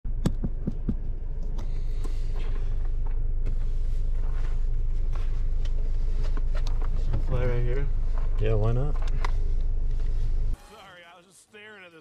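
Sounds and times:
car engine idling: 0.1 - 10.6
clothing and gear rustling: 1.9 - 8.4.

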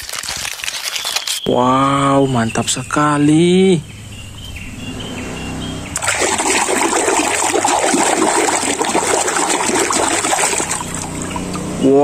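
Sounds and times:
water splashing in a tub: 6.0 - 11.7.

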